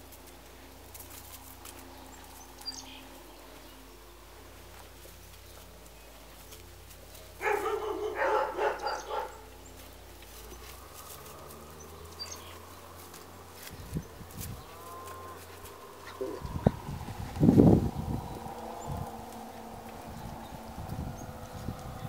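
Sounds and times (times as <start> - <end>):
puppies barking and yapping: 6.4 - 14.0.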